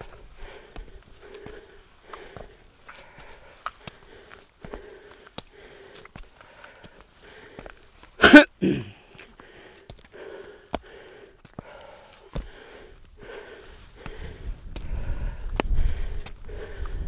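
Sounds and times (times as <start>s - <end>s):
heavy breathing: 0.0s - 17.0s
cough-like burst of breath: 8.2s - 9.0s.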